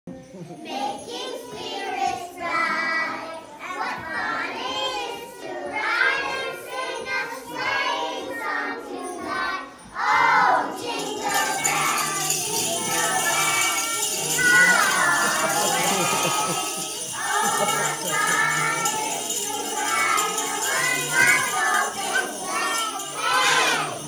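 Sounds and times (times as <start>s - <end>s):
children singing: 0.6s - 24.0s
tiny metal chimes shaking: 11.0s - 24.0s.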